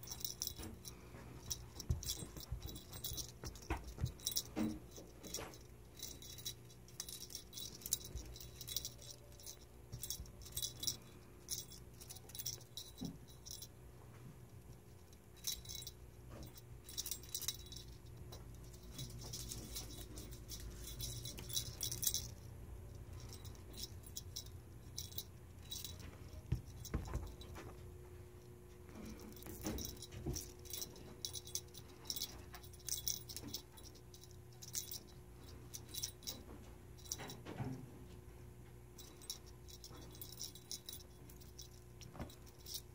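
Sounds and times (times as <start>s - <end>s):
cat toy jingling and rattling: 0.0s - 13.8s, 14.5s - 37.8s, 38.9s - 42.9s
steady low hum: 0.0s - 42.9s.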